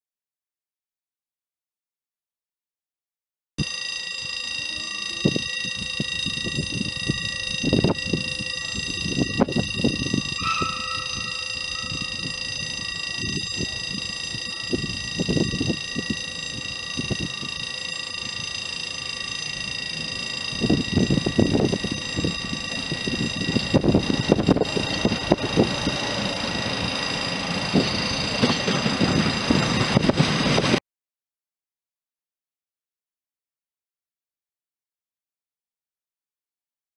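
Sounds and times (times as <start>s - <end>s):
steam locomotive exhaust beats: 4.1s - 30.8s.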